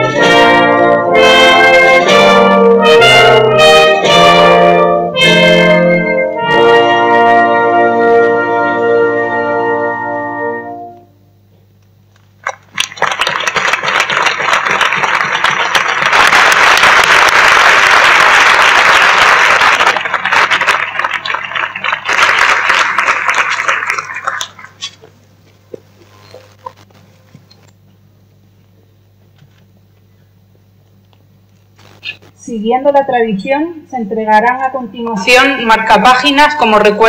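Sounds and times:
organ chord: 0.0 - 11.5
crowd applauding: 12.4 - 24.9.

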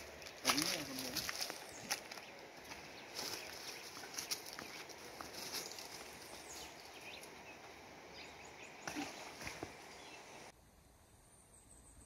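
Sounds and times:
footsteps on rock and water: 0.0 - 6.8, 8.9 - 9.8
steady outdoor hiss: 0.0 - 12.0.

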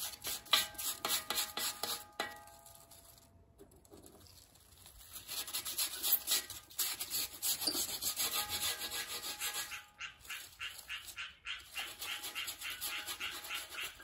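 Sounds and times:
charcoal crackling and popping: 1.7 - 5.6.

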